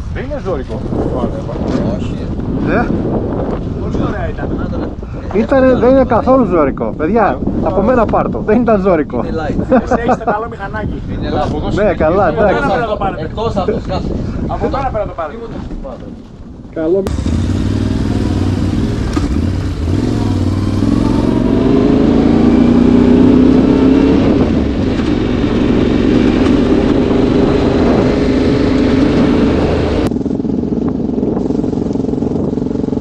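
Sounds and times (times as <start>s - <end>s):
motorcycle engine accelerating: 17.1s - 33.0s.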